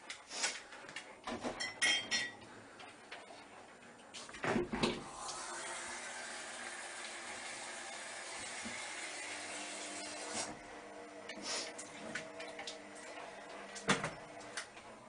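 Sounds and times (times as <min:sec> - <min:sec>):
dishes and pots clinking: 0:01.3 - 0:02.5
tap water running into sink: 0:04.8 - 0:10.2.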